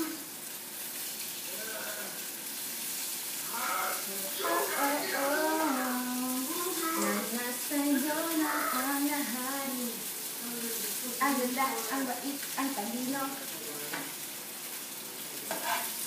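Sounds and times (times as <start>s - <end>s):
food sizzling in a pan: 0.0s - 16.0s
woman singing slow melody: 4.4s - 11.2s.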